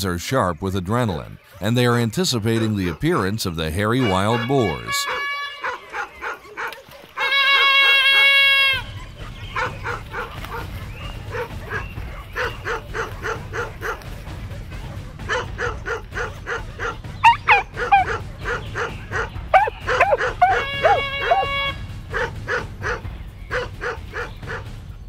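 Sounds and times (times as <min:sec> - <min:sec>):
dogs barking: 0:02.3 - 0:25.0
horn-like tone: 0:04.0 - 0:05.7, 0:07.2 - 0:08.8, 0:20.0 - 0:21.8
dogs yelping: 0:05.1 - 0:14.1, 0:15.3 - 0:24.7.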